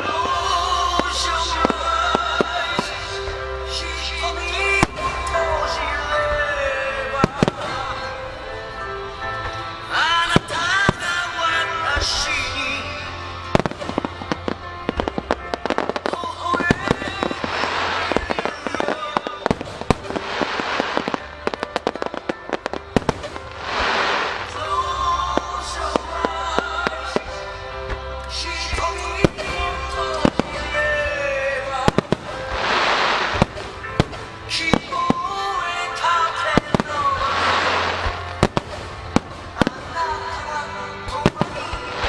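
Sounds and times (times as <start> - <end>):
background music: 0.0 - 42.0
firework hissing crackle: 13.5 - 25.0, 31.8 - 35.5, 36.5 - 40.3.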